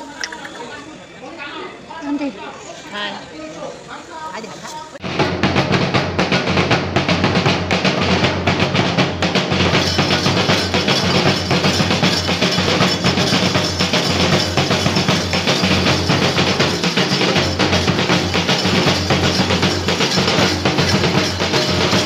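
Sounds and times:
loud fast drumming: 5.0 - 22.0
music: 5.0 - 22.0.

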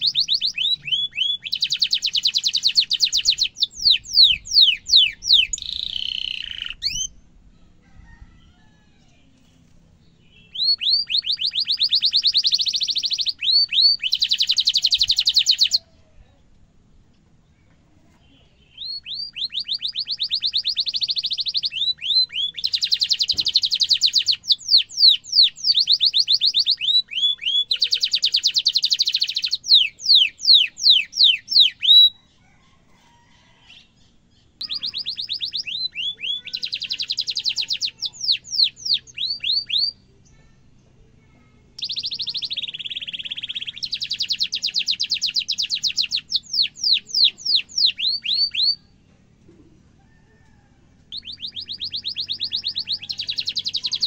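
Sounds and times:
sharp downward chirps: 0.0 - 7.2, 10.3 - 15.8, 18.7 - 32.2, 41.8 - 48.9, 51.1 - 54.0
canary singing rolling trills: 0.0 - 16.0, 17.6 - 40.2, 41.8 - 49.0, 49.8 - 54.0.

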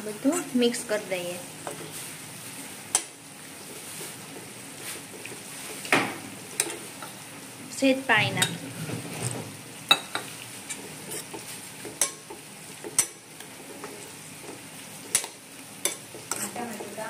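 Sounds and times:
food sizzling: 0.0 - 17.0
ladle clinking and scraping pan: 15.1 - 16.6.

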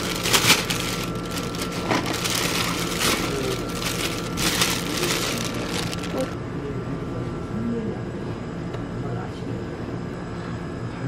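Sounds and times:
plastic bag rustling and crinkling: 0.0 - 6.4.

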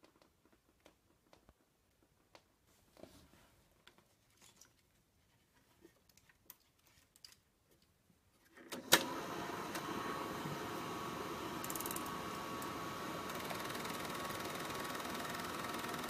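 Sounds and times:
projector motor whirring: 8.8 - 16.0.

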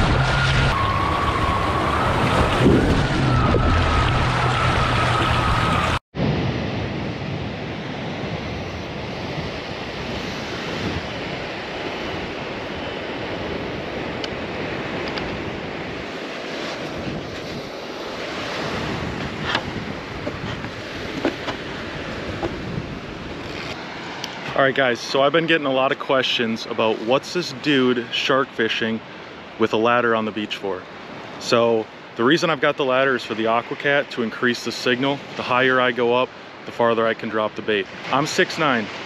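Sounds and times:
splashing water: 0.0 - 6.0
wind buffeting microphone: 0.0 - 24.5
surf washing on beach: 0.0 - 39.0.

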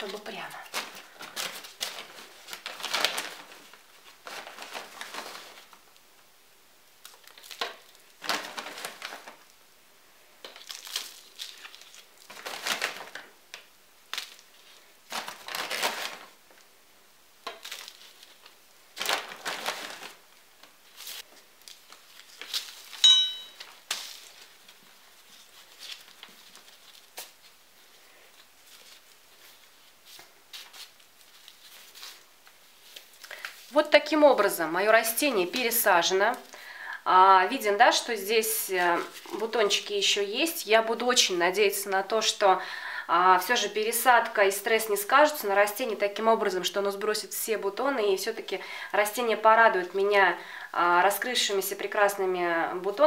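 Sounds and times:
soil and plastic bag rustling: 0.0 - 6.0, 7.0 - 9.5, 10.4 - 16.6, 17.4 - 33.9
sharp ringing squeak: 23.0 - 23.6.

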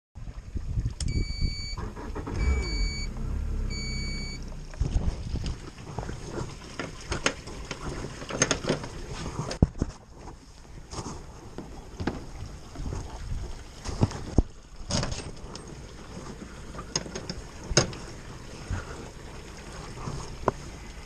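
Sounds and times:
outboard engine rumbling: 0.3 - 21.0
helm beeps: 1.1 - 3.1, 3.7 - 4.4.

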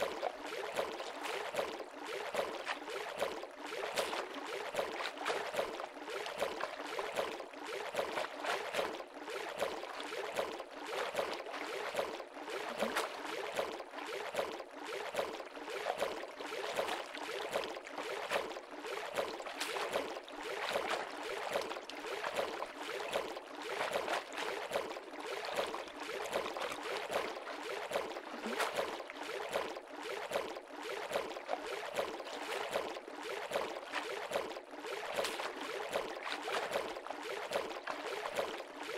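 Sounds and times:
small water splashes: 0.0 - 38.9.

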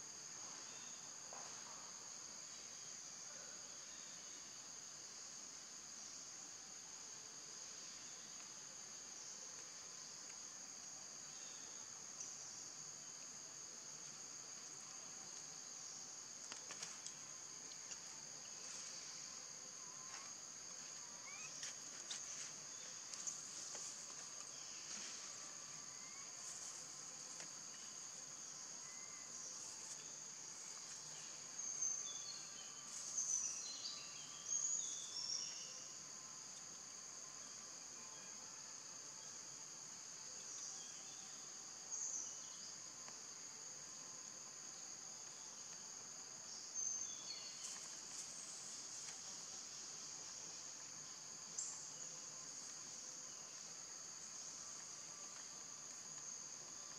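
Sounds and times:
high-pitched insect chorus: 0.0 - 56.9.

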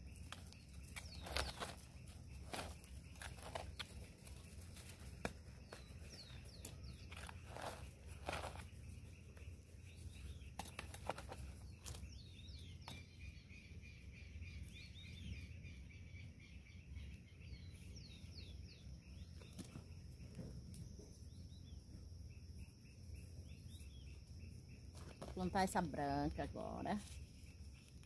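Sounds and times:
hand tool scraping soil: 0.0 - 12.2
birds chirping: 0.0 - 28.0
high insect call: 0.0 - 28.0.

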